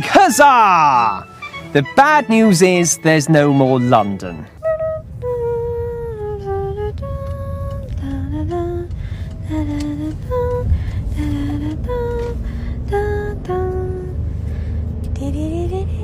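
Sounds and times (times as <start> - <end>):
low background rumble: 4.2 - 16.0
person humming a slow tune: 4.6 - 8.9.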